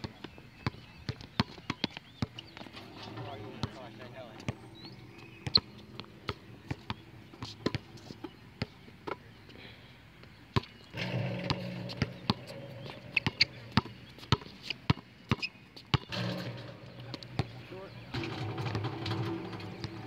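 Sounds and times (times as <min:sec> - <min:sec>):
basketball bouncing on asphalt: 0:00.0 - 0:09.2, 0:10.2 - 0:20.0.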